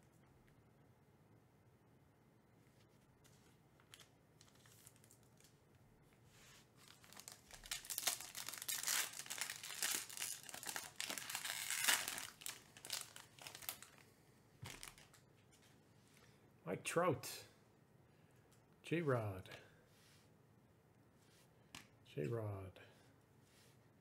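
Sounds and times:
foil pack tearing and crinkling: 0:06.8 - 0:14.0, 0:14.7 - 0:15.2.

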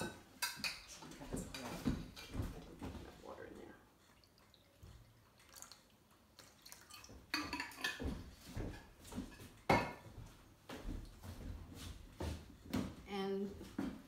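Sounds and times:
water trickling into metal pan: 0:04.0 - 0:08.0.

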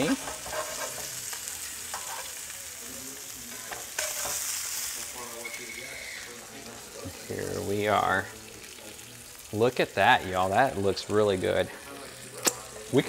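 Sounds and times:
fish sizzling in butter: 0:00.0 - 0:13.0
metal spatula scraping pan: 0:00.1 - 0:01.2, 0:01.9 - 0:02.3.

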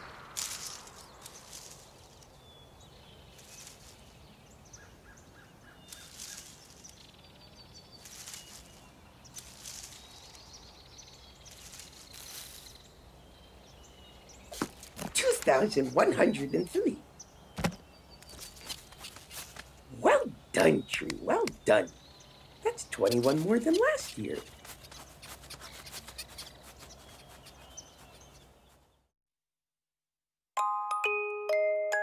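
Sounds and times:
breeze rustling leaves: 0:00.0 - 0:28.9
faint bird chirps: 0:00.4 - 0:14.7, 0:20.1 - 0:29.0.

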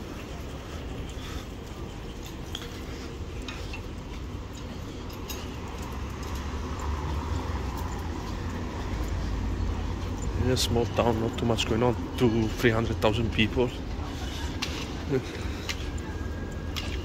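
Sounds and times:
low city rumble: 0:00.0 - 0:17.0.

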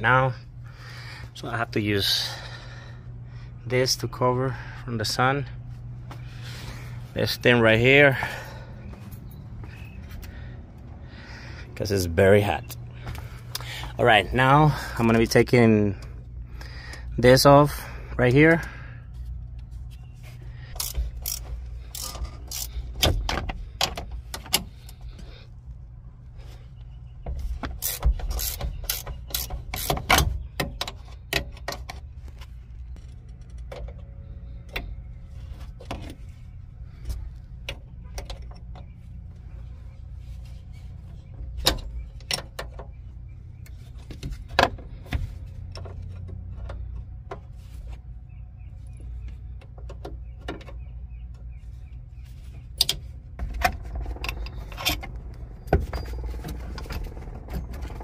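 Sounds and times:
steady low hum: 0:00.0 - 0:58.0
wrench and metal parts clicking: 0:20.7 - 0:25.0, 0:27.7 - 0:32.0.

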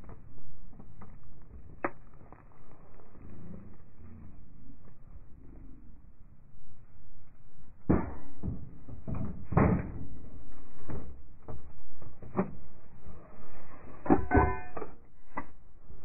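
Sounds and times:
metal clanks and knocks: 0:14.0 - 0:15.0.

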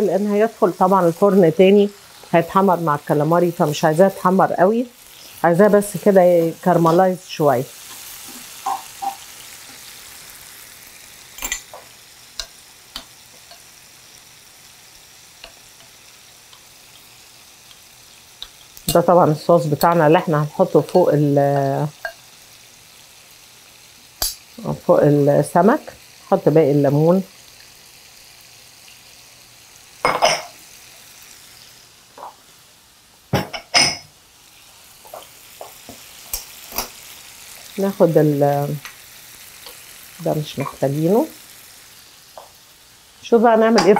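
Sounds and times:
lemon slices sizzling in a pan: 0:00.0 - 0:43.9
kitchenware clattering: 0:30.0 - 0:30.6, 0:33.3 - 0:34.1, 0:43.7 - 0:43.9.

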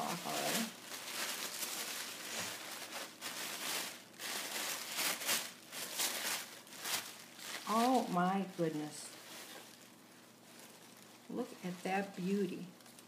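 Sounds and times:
tissue paper rustling: 0:00.0 - 0:13.0.

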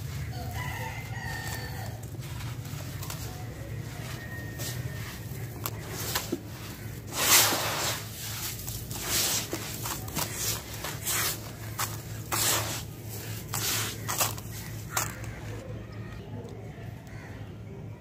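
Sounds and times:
sand pouring through fingers: 0:01.7 - 0:15.5
sand raked by hand: 0:01.7 - 0:15.6.

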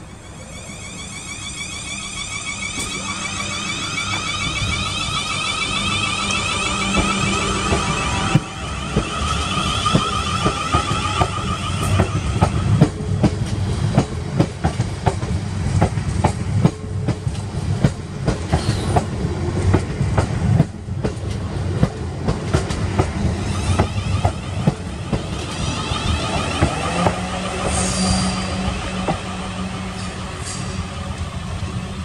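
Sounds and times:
high whine: 0:00.0 - 0:14.5, 0:23.0 - 0:32.0
train low rumble: 0:00.0 - 0:32.0
train wheels clattering over rails: 0:02.6 - 0:32.0.

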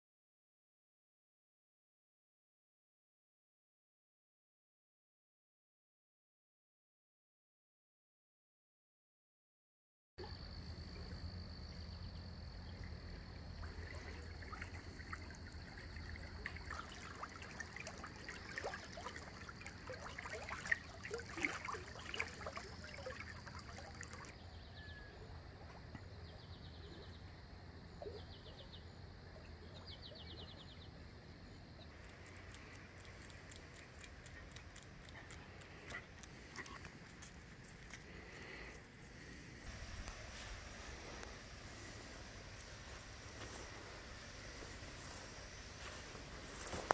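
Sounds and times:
creek trickling: 0:10.2 - 0:24.4, 0:31.9 - 0:46.9.

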